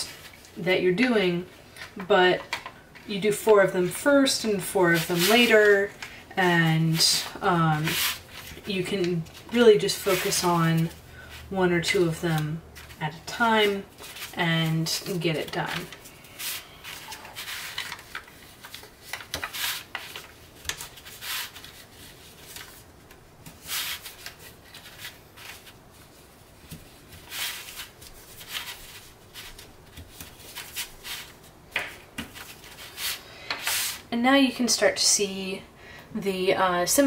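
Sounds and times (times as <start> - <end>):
paper rustling and rubbing: 4.5 - 6.0, 6.8 - 34.1.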